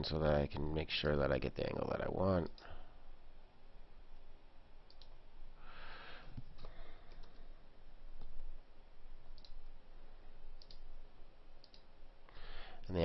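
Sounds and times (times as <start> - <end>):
low steady hum: 0.0 - 13.0
computer mouse clicking: 4.9 - 5.2, 6.4 - 7.5, 8.2 - 8.5, 9.2 - 9.8, 10.6 - 10.9, 11.6 - 11.9.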